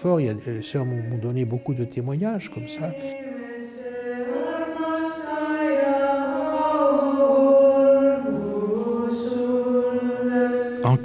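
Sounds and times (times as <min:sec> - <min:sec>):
women chanting a cappella: 0:02.4 - 0:11.0.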